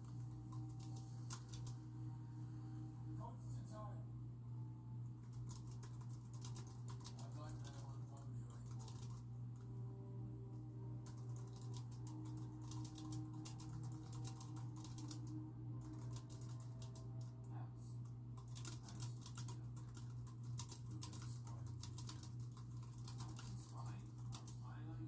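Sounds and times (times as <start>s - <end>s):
keyboard typing clicks: 0.0s - 1.8s, 5.3s - 7.9s, 8.6s - 9.2s, 11.0s - 17.3s, 18.4s - 23.5s
steady low hum: 0.0s - 25.0s.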